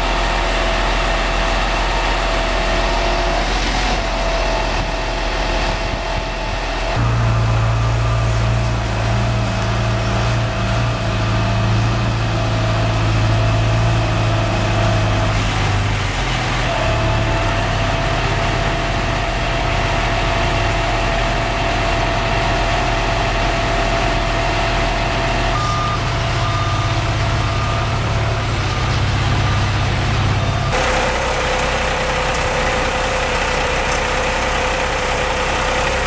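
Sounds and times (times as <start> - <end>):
truck engine running: 0.0 - 36.0
short beeps: 25.6 - 28.1
steady whine: 27.4 - 36.0.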